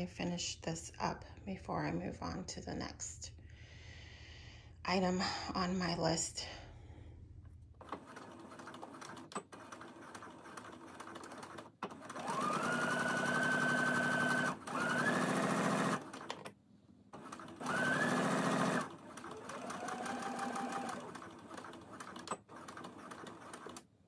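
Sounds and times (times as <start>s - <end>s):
sewing machine stitching: 7.8s - 23.9s.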